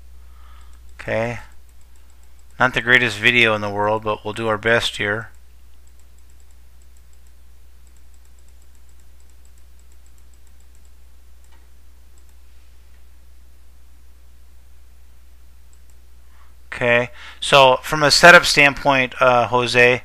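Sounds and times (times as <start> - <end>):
low electrical hum: 0.0 - 20.0
rapid computer clicks: 0.5 - 12.4, 15.7 - 16.0.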